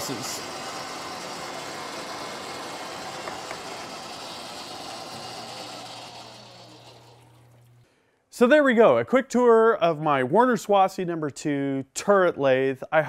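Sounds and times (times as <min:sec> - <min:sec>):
lathe running: 0:00.0 - 0:07.8.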